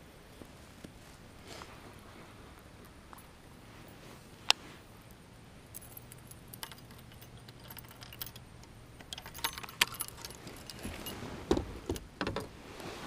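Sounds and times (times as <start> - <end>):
fishing tackle clinking: 5.6 - 12.4.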